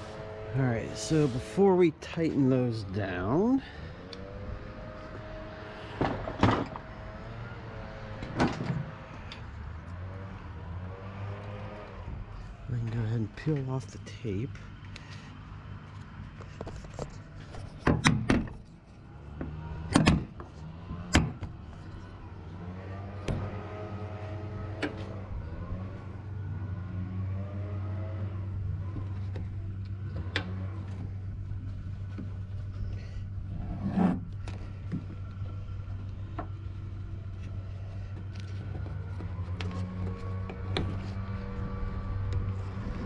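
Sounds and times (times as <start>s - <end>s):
steady low hum: 11.8s - 43.0s.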